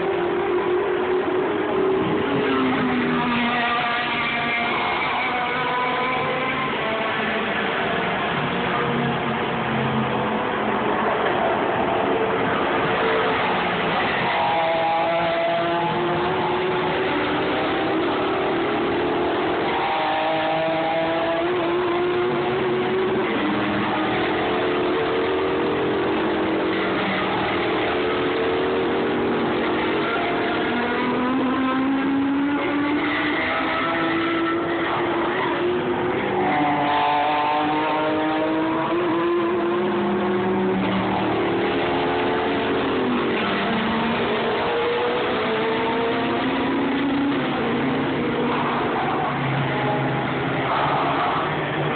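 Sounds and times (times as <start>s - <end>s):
race car engines accelerating: 0.0s - 51.9s.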